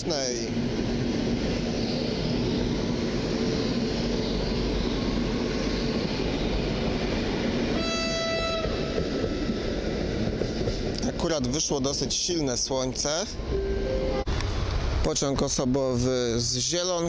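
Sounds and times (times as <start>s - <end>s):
train wheels rumbling on rails: 0.0s - 13.5s
train horn blast: 7.8s - 8.8s.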